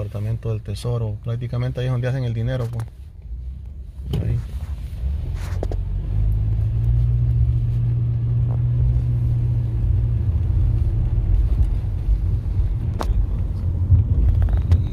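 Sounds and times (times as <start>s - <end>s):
car engine and road noise: 0.0s - 14.9s.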